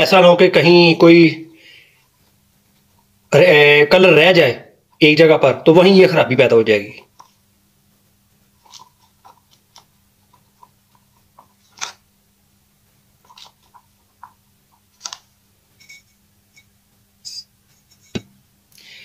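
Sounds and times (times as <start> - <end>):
stick scraping plastic cup: 8.5 - 12.0, 13.2 - 16.7.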